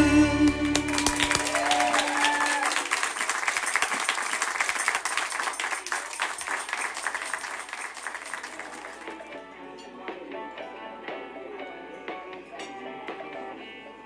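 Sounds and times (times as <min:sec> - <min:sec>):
crowd clapping and cheering: 0:00.0 - 0:09.5
people whooping: 0:00.4 - 0:03.3.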